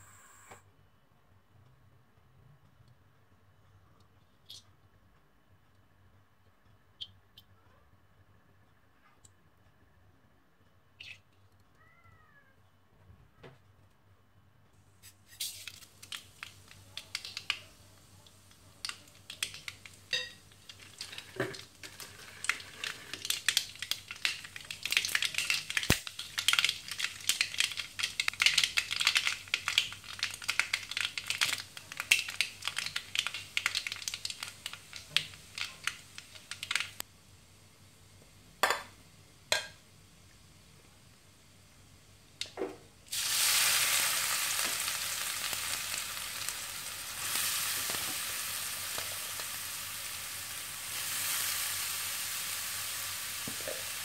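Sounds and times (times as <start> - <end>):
mustard seeds popping in oil: 15.3 - 37.1, 42.4 - 51.4.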